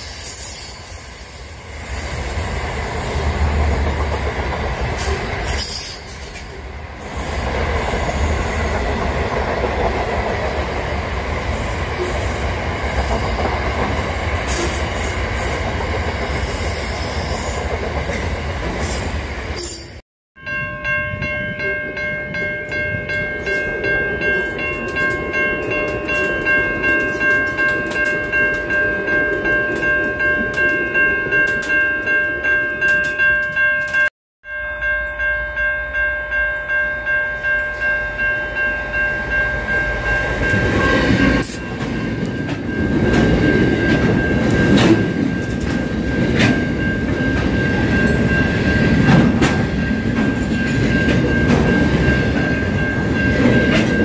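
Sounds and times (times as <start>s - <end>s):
railcar rumble: 0.0s - 34.1s, 34.7s - 54.0s
train passing: 0.0s - 34.1s, 35.1s - 54.0s
freight train clattering past: 1.7s - 20.0s, 37.4s - 54.0s
level crossing bell ringing: 20.4s - 54.0s.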